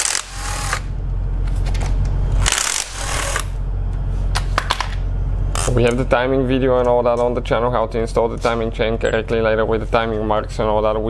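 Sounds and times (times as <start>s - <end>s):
impact wrench hammering: 0.0s - 0.9s.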